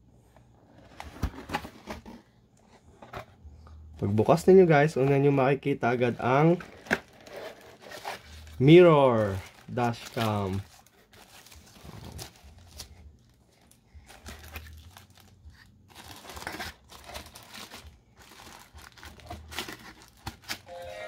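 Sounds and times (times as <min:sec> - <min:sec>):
packaging rustling and crinkling: 0:05.9 - 0:20.7.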